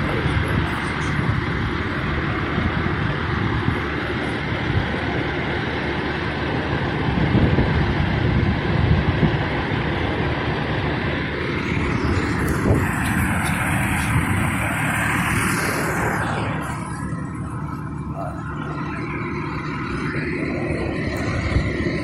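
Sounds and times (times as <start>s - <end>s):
vehicle and road rumble: 0.0s - 22.0s.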